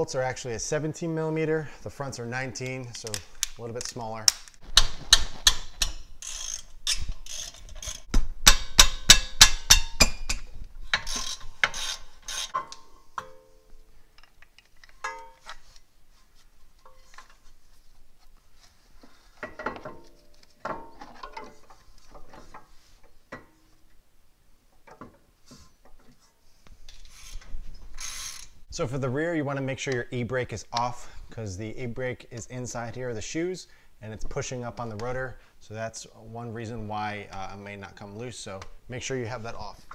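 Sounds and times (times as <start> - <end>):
ratchet wrench clicking: 5.4 - 9.9, 11.0 - 12.6, 28.0 - 28.6
metal tools clinking: 14.2 - 15.6.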